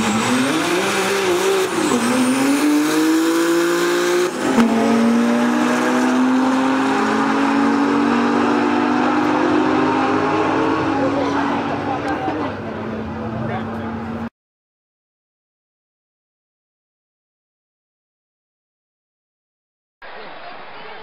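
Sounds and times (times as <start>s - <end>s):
turbo car engine at full throttle: 0.0s - 14.3s.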